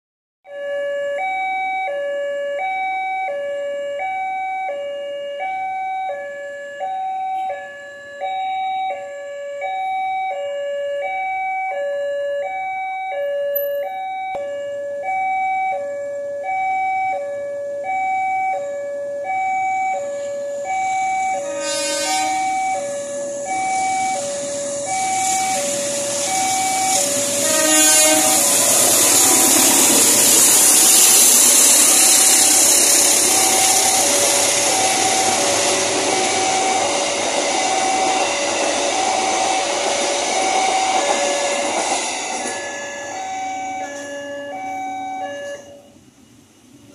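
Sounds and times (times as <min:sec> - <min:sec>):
level crossing two-tone alarm: 0:00.5 - 0:45.9
approaching train noise: 0:19.2 - 0:46.9
train horn blasts: 0:20.2 - 0:45.9.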